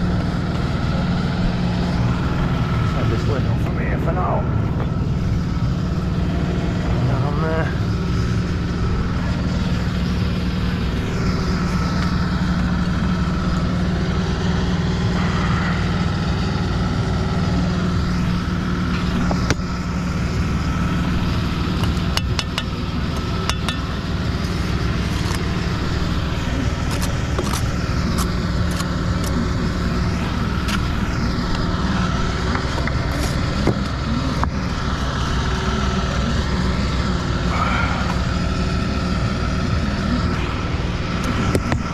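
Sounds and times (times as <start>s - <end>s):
engine droning: 0.0s - 41.9s.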